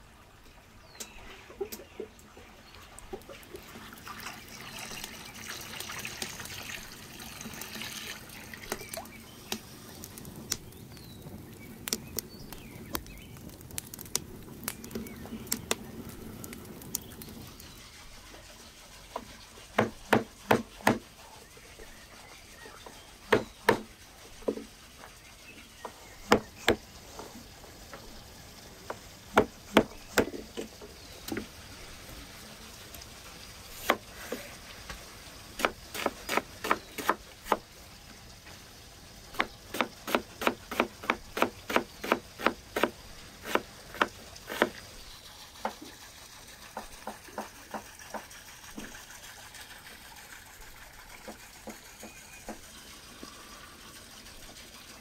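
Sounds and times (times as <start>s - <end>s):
cleaver chopping on wooden board: 19.8s - 21.0s, 23.3s - 23.9s, 26.3s - 26.8s, 35.6s - 37.6s, 39.4s - 42.9s, 43.5s - 44.8s.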